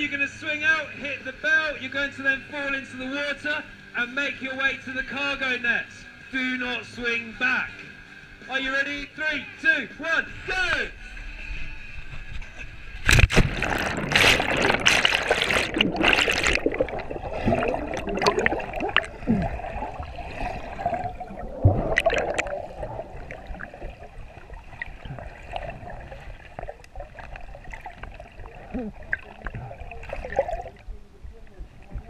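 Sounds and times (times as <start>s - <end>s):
underwater bubbling and gurgling: 12.6s - 32.0s.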